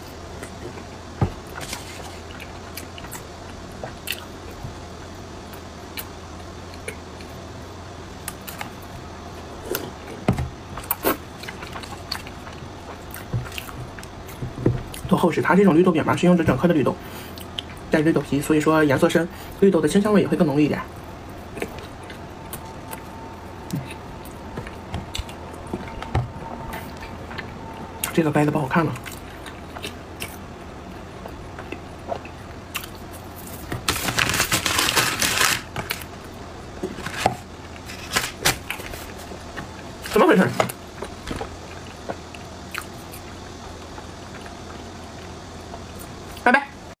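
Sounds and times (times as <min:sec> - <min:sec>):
soft chewing with mouth clicks: 0:29.0 - 0:33.6.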